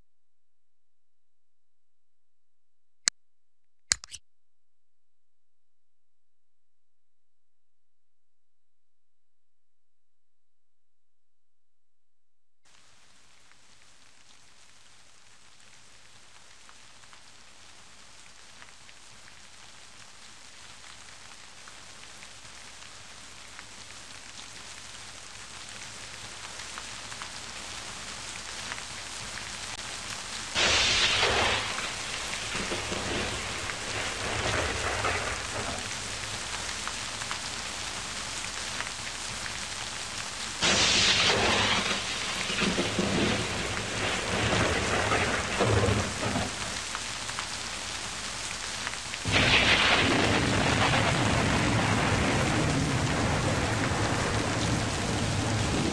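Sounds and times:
steady rain hiss: 0:12.7 - 0:55.9
thunderclaps with rumble: 0:30.6 - 0:36.5, 0:40.6 - 0:46.8, 0:49.3 - 0:55.9.

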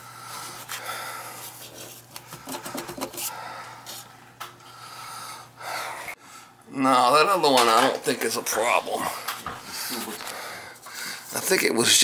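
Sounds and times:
steady low hum: 0:00.0 - 0:07.4
hand rubbing copper pipes: 0:01.4 - 0:04.1.

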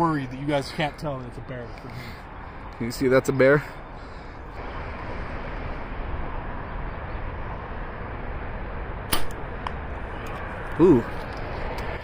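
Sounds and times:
outdoor background hiss: 0:00.0 - 0:12.0
compound bow snap: 0:09.1 - 0:09.8.

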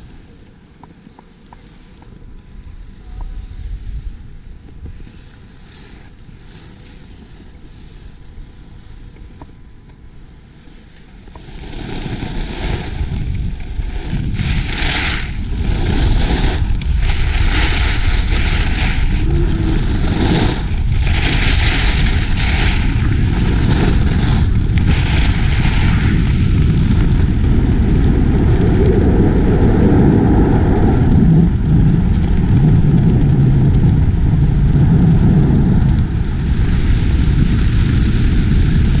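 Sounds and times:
skis scraping over snow: 0:04.9 - 0:09.4, 0:10.2 - 0:39.0
wind buffeting microphone: 0:11.4 - 0:39.0.

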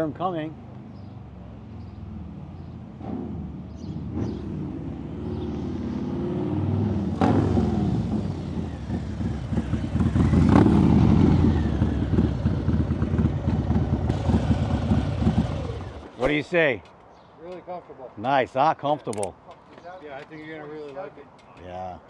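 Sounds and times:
motorcycle passing by: 0:00.9 - 0:16.0
sharp click: 0:19.0 - 0:19.4.

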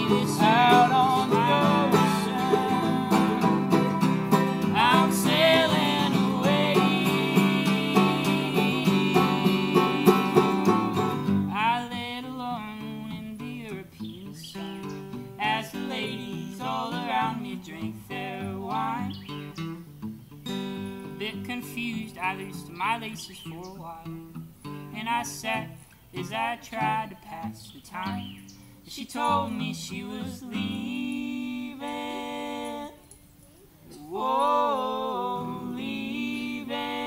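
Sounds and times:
banjo: 0:00.0 - 0:11.3
acoustic guitar: 0:00.0 - 0:37.0.

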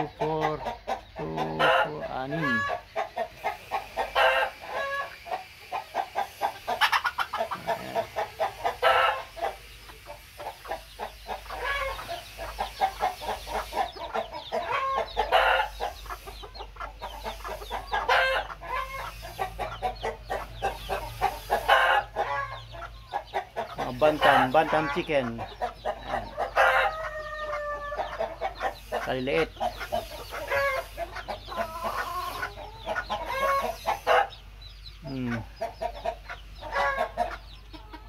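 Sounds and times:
chickens clucking: 0:00.0 - 0:38.0
loud long chicken calls: 0:00.0 - 0:38.0.

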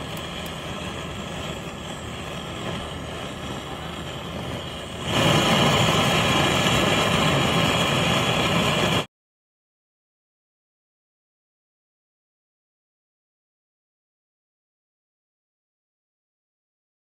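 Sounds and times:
gas torch flame hissing: 0:00.0 - 0:09.1.

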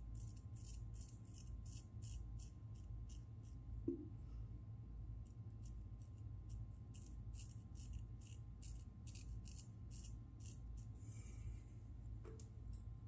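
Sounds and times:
razor scraping stubble: 0:00.1 - 0:03.6, 0:05.6 - 0:11.0.

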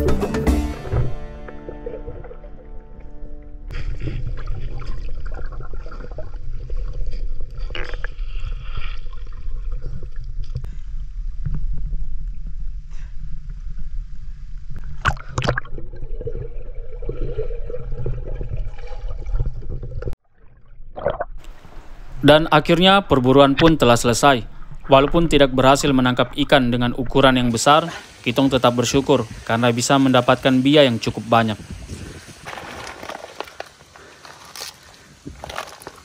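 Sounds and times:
muffled underwater churning: 0:00.8 - 0:28.2.

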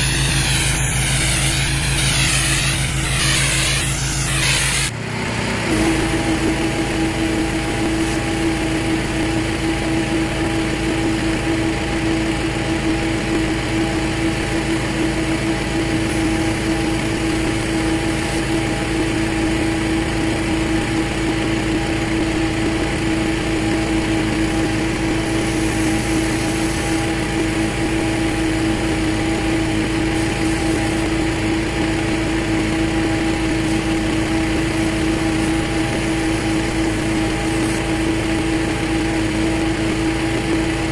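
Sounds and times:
water spray hissing: 0:00.0 - 0:04.9, 0:25.2 - 0:27.0
pressure washer engine running: 0:00.0 - 0:40.9.

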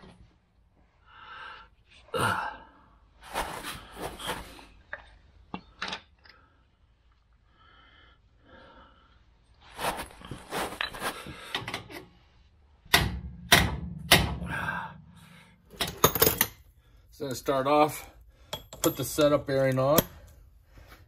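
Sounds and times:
man sighing and breathing: 0:01.1 - 0:03.0, 0:14.4 - 0:15.7
handling noises: 0:09.7 - 0:12.0.

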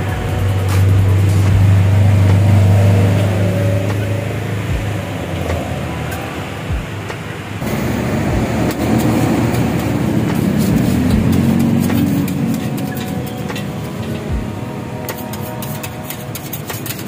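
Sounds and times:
traffic hum: 0:00.0 - 0:17.0
vehicle passing close by: 0:00.4 - 0:06.7
spatulas clicking on steel griddle: 0:08.7 - 0:14.2, 0:15.1 - 0:17.0.

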